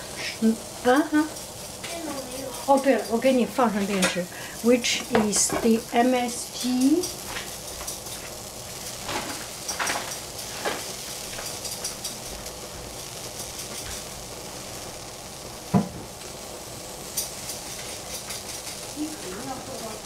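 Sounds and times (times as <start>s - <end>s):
mushrooms sizzling in a pan: 0.0s - 20.0s
sharp knock: 15.7s - 16.1s.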